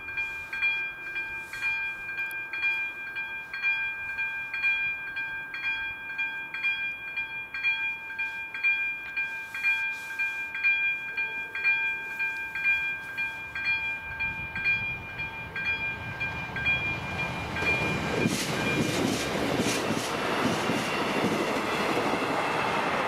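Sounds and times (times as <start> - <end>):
level-crossing warning bell: 0.0 - 23.0
train rumble: 8.2 - 23.0.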